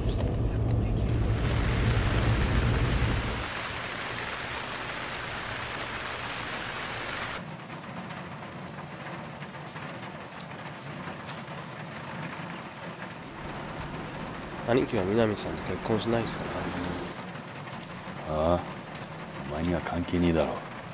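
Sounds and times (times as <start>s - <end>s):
car engine rumble: 0.0s - 3.6s, 13.2s - 18.2s
steady rain hiss: 0.2s - 20.9s.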